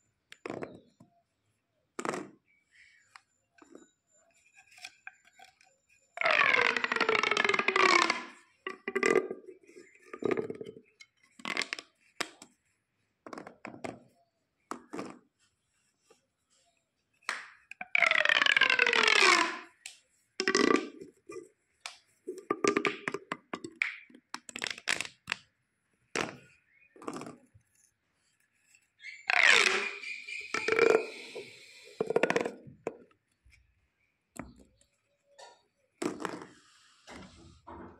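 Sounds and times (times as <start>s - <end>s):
plastic pop tubes rasping: 6.2s - 12.6s, 13.3s - 15.4s, 17.2s - 27.8s, 28.7s - 33.6s, 34.3s - 37.3s.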